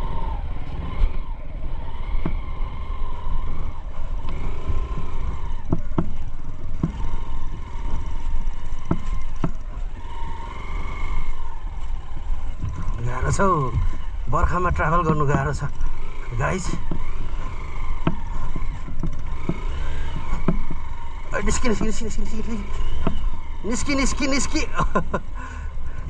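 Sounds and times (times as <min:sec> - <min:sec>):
motorcycle engine running: 0:00.0 - 0:26.0
motorcycle jolting knocks: 0:05.6 - 0:09.8, 0:16.7 - 0:22.2, 0:22.8 - 0:23.6.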